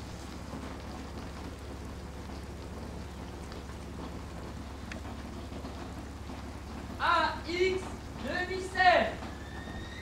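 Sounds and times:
rain-like hiss: 0.0 - 10.0
faint ticks: 4.8 - 5.2.

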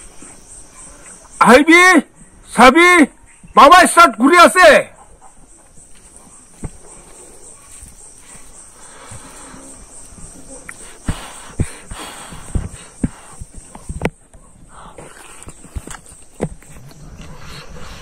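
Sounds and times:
insects shrilling: 3.6 - 18.0.

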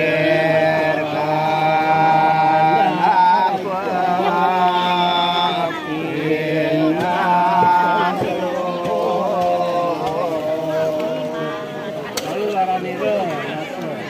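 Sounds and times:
person chanting long held notes: 0.0 - 13.0.

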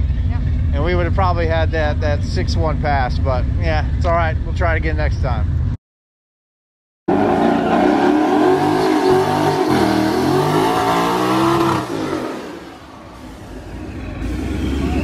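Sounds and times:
car engine revving hard: 7.1 - 12.7.

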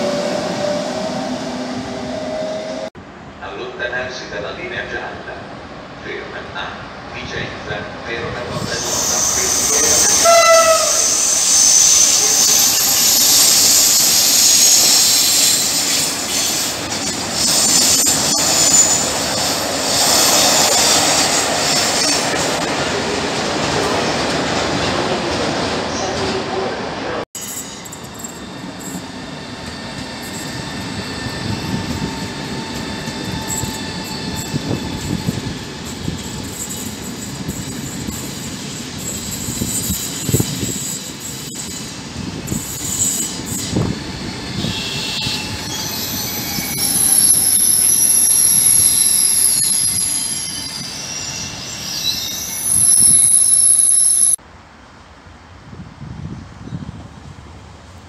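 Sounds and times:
train wheels rumbling on track: 0.0 - 54.5
high steady squeal: 42.5 - 54.4.

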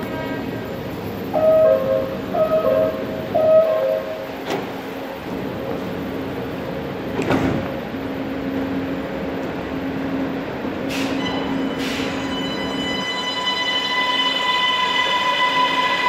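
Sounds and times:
train doors shutting with a knock: 2.4 - 5.1, 7.1 - 7.8.

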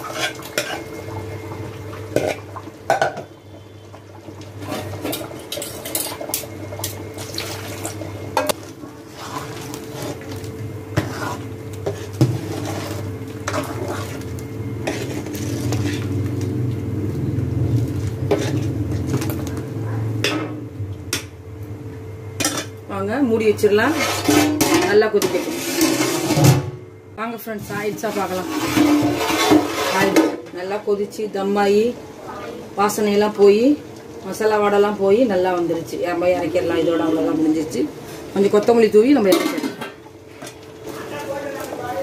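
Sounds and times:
utensils clinking on metal pot: 39.2 - 40.6.

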